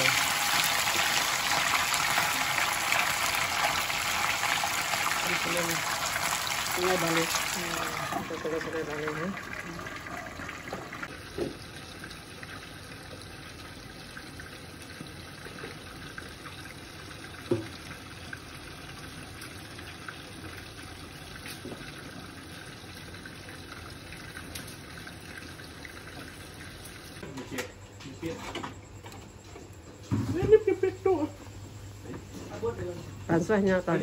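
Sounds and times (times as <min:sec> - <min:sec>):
fish sizzling in hot oil: 0:00.0 - 0:25.0.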